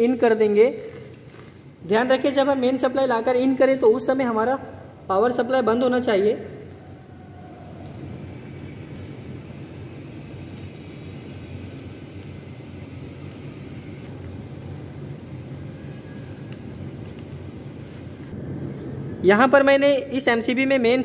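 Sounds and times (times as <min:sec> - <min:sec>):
clicks and taps of wires: 0:10.1 - 0:14.7.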